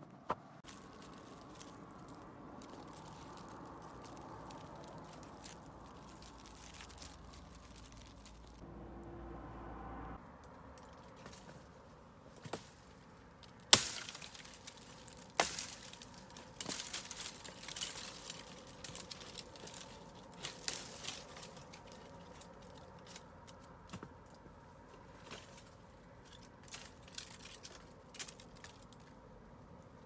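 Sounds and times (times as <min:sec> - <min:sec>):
crackly rustling: 0:00.0 - 0:08.7, 0:10.4 - 0:30.0
sharp cracks and knocks: 0:12.3 - 0:24.5.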